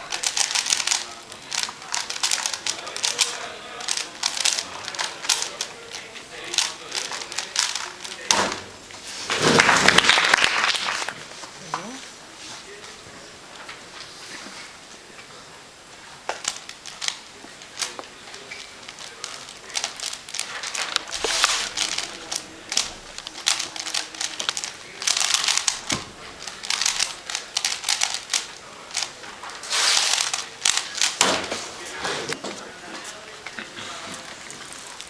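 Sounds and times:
puzzle cube clicking: 0.0s - 8.4s, 16.3s - 31.4s.

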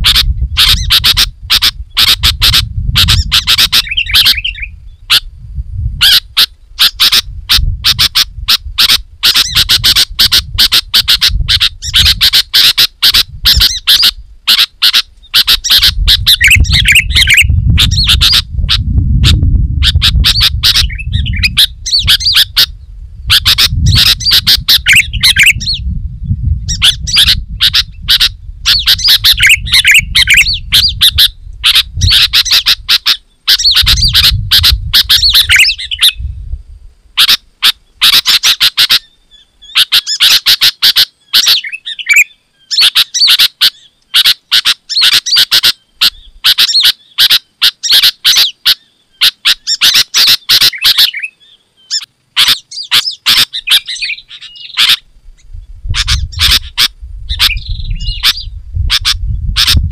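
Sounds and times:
bird chirping and warbling: 0.0s - 5.3s, 6.0s - 36.4s, 37.2s - 59.9s
low rumble: 15.9s - 32.3s, 55.2s - 59.9s.

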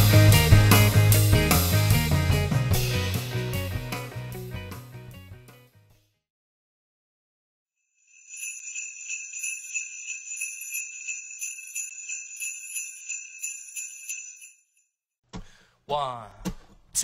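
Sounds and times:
sleigh bells jingling: 8.0s - 14.8s.

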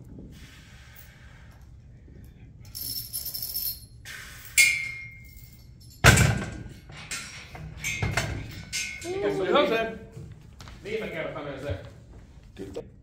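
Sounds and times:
weight plates rattling: 4.5s - 9.5s
ringing metal clank: 4.6s - 9.3s.

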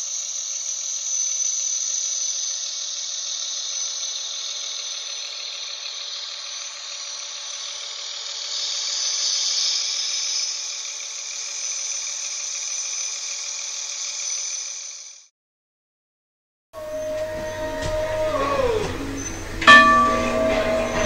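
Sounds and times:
model train motor whirring: 0.0s - 15.3s.

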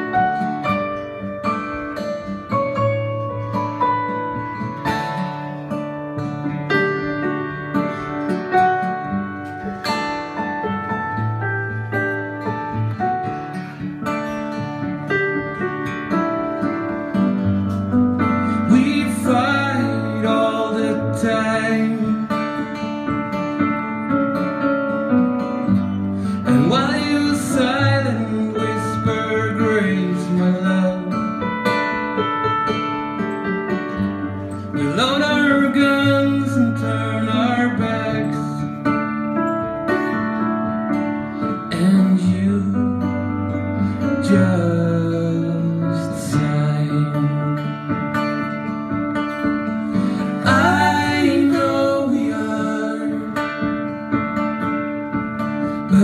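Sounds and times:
acoustic guitar strummed: 0.0s - 56.0s
keyboard piano chords and bass: 0.0s - 56.0s
person singing: 18.4s - 22.4s, 50.0s - 53.7s.

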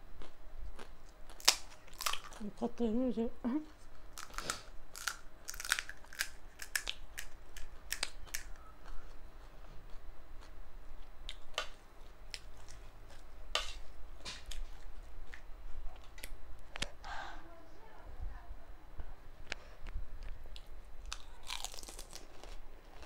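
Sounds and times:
crisp shells cracking: 1.3s - 2.4s, 4.1s - 8.5s, 21.0s - 23.0s.

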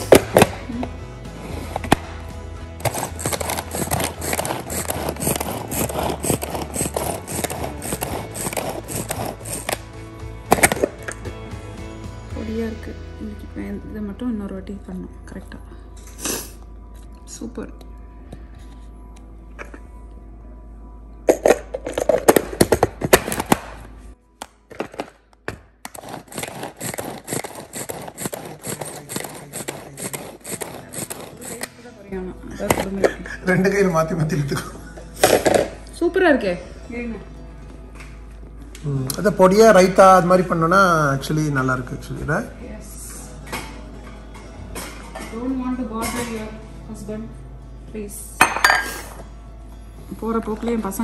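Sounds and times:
manual food chopper clattering: 2.8s - 9.8s, 25.9s - 31.7s.

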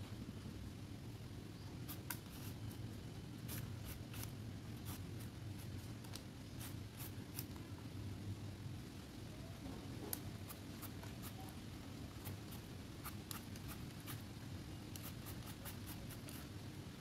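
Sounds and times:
peeler scraping mango skin: 3.4s - 7.6s.

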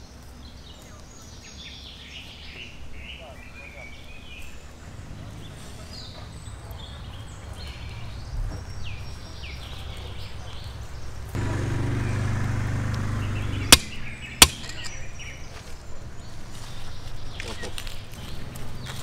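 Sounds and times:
birds chirping: 0.0s - 19.0s
sharp knocks: 12.9s - 14.9s.

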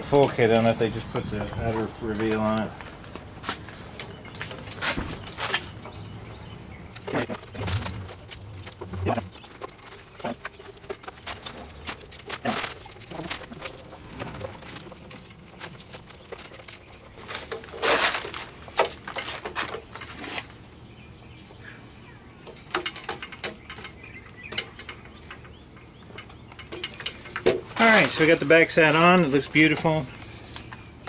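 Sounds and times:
scraping rustle: 7.0s - 20.6s, 26.2s - 30.8s.

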